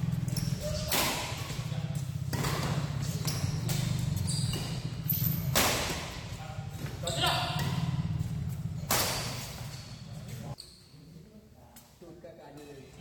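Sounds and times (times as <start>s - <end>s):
low hum: 0.0s - 10.6s
shoes squeaking on court: 0.0s - 11.0s
racket hitting shuttlecock: 0.1s - 9.7s.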